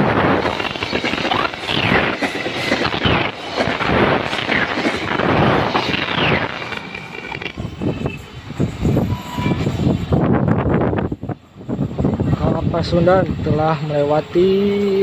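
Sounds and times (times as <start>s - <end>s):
train wheels rumbling on rails: 0.0s - 15.0s
high wheel squeals: 5.7s - 10.0s.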